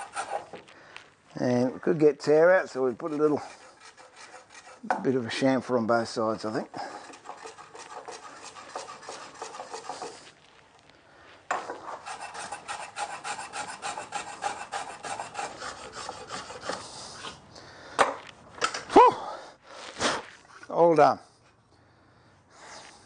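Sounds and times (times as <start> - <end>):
block plane scraping wood: 0.0 - 0.7, 2.6 - 5.1, 6.7 - 10.4, 11.5 - 17.3.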